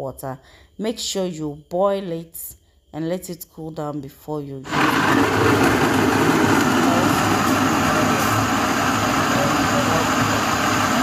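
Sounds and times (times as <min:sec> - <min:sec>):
blender motor chopping vegetables: 0:04.7 - 0:11.0.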